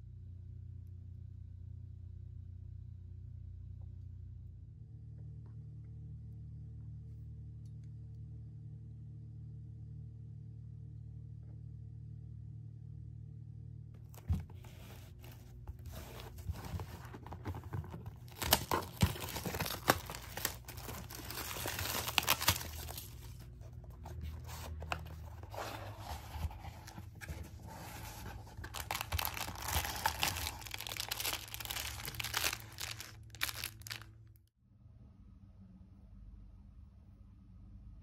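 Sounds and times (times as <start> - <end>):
cardboard sliding and scraping: 14.2 - 33.0
plastic wrap crinkling: 16.0 - 34.2.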